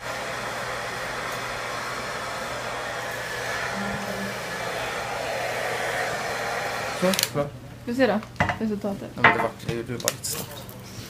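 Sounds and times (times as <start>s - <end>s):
hair dryer running: 0.0s - 7.4s.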